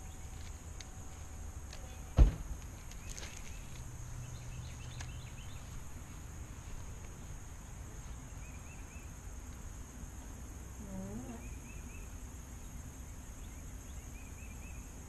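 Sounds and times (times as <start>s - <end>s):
sharp thump: 2.2s - 2.6s
high-pitched insect drone: 10.7s - 12.6s.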